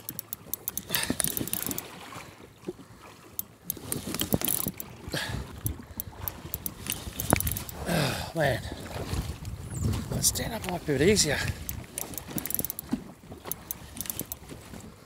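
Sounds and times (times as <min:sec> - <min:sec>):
fishing reel clicking: 0:00.0 - 0:01.9, 0:03.3 - 0:04.9, 0:05.6 - 0:07.8, 0:11.4 - 0:14.4.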